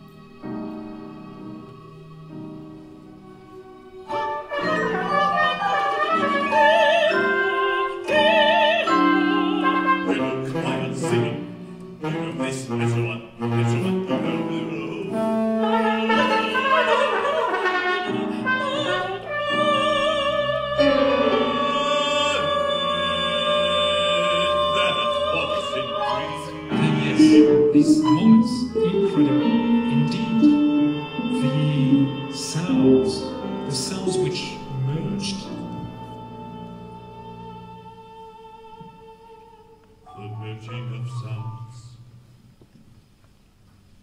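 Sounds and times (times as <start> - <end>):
chamber ensemble music: 0.0 - 42.6.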